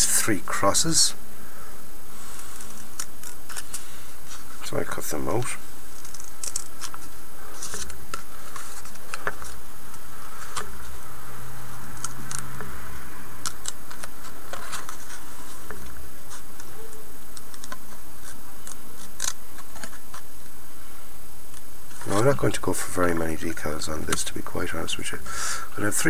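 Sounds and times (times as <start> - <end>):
scissors snipping paper: 17.3 - 20.2.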